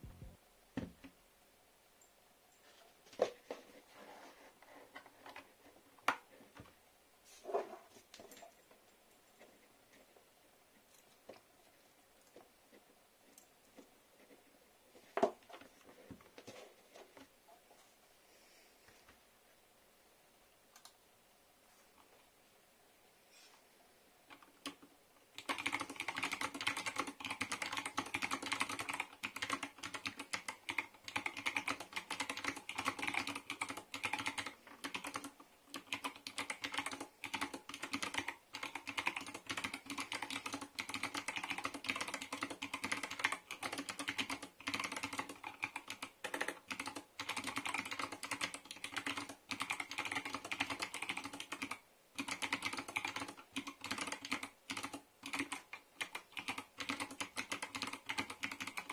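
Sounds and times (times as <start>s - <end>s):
fast typing on mechanical keyboard: 25.4s - 58.9s.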